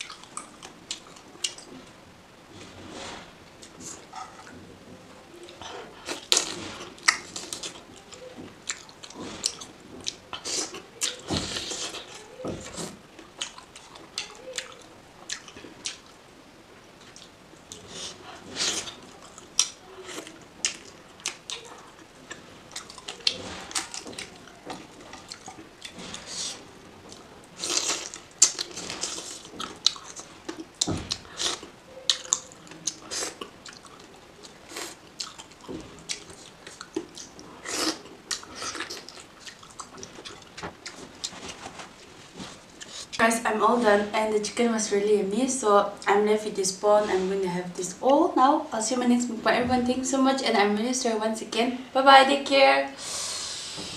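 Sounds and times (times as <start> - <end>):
person chewing food: 0.0 - 1.9, 5.3 - 16.2, 17.0 - 43.2.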